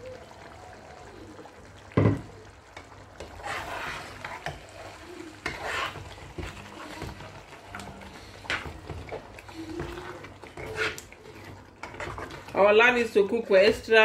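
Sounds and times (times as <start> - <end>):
metal ladle scraping pot: 3.2 - 12.6.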